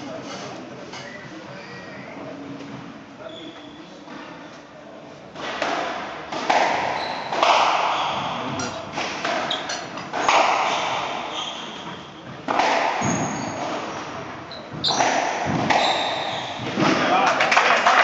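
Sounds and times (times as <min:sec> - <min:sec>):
squash ball smacks: 0:05.4 - 0:09.5, 0:12.5 - 0:14.2, 0:14.8 - 0:17.5.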